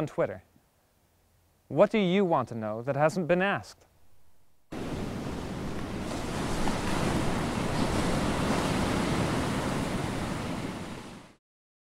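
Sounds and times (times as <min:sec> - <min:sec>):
surf rushing: 0:04.1 - 0:11.4.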